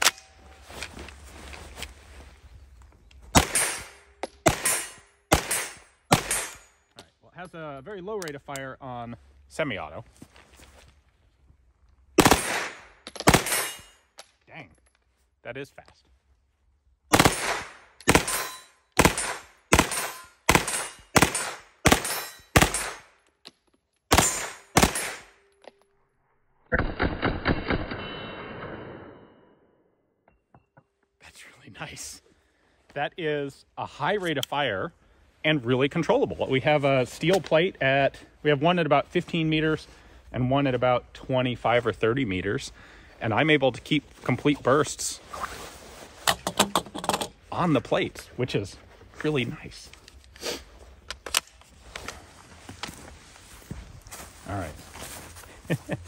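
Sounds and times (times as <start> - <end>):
gunshots: 3.3 - 6.6, 12.2 - 13.9, 17.1 - 23.1, 24.1 - 25.4, 26.7 - 29.4
full-auto gunfire burst: 12.2 - 13.7, 17.1 - 18.4, 19.0 - 23.0, 24.1 - 25.3.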